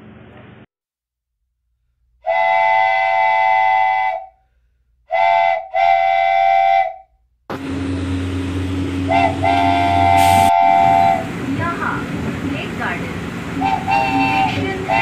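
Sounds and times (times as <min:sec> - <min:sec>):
train horn blasts: 0:02.2 - 0:04.4, 0:05.1 - 0:07.0, 0:08.8 - 0:11.4, 0:13.6 - 0:15.0
running train rumble: 0:07.5 - 0:15.0.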